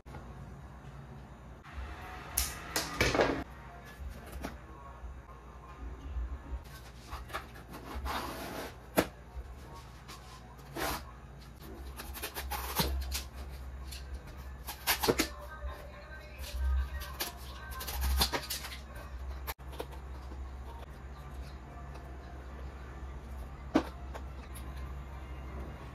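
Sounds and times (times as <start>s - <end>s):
cardboard rustling and scraping: 6.7s - 15.3s.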